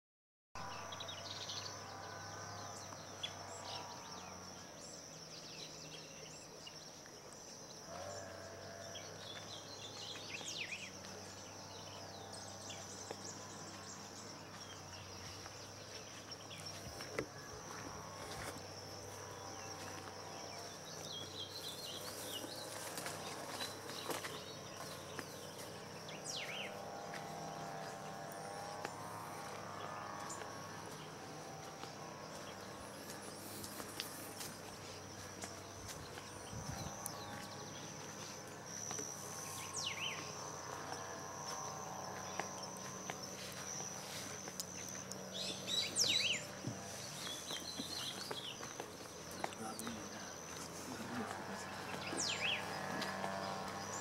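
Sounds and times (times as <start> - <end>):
high-pitched insect drone: 10.3 - 54.0
bird chirps: 42.3 - 54.0.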